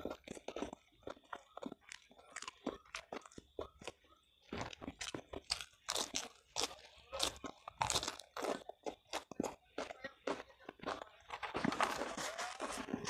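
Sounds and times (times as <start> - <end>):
person chewing crunchy cabbage: 0.0 - 13.0.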